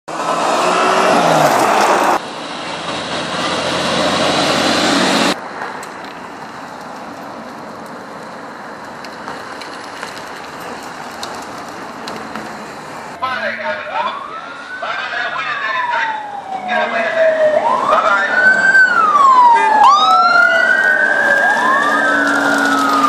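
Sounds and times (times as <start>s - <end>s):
cars driving past: 0.1s - 13.2s.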